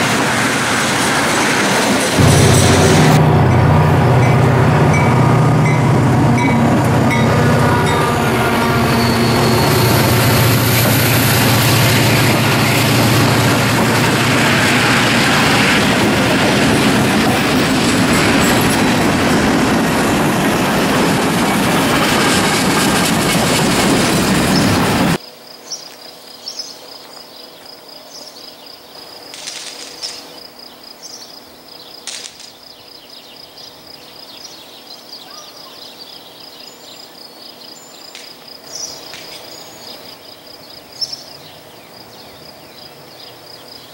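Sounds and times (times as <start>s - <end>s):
diesel locomotive engines: 0.0s - 25.2s, 28.9s - 43.9s
train wheels on rails: 0.0s - 25.2s, 29.3s - 30.3s, 38.1s - 40.2s.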